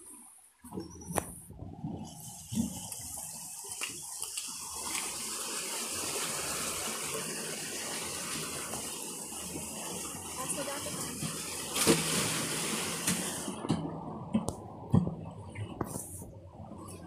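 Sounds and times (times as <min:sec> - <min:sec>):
water gushing through sluice gate: 0:02.0 - 0:13.6.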